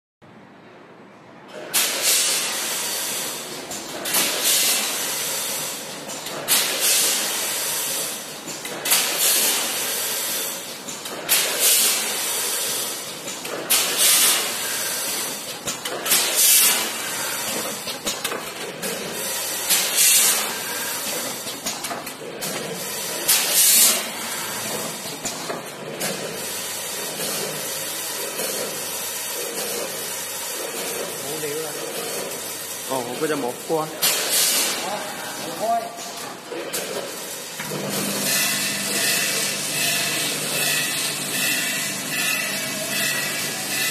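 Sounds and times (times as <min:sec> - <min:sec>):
machine hiss and rattle: 0:01.5 - 0:43.9.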